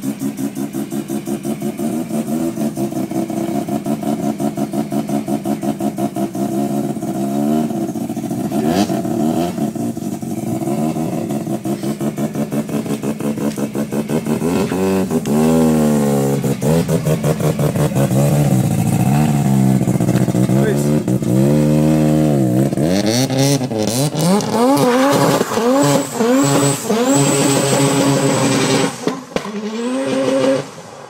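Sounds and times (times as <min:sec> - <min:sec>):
rotary engine choppy idle: 0:00.0 - 0:23.0
engine revving: 0:00.0 - 0:31.0
exhaust pop: 0:11.8 - 0:26.9, 0:27.6 - 0:30.6.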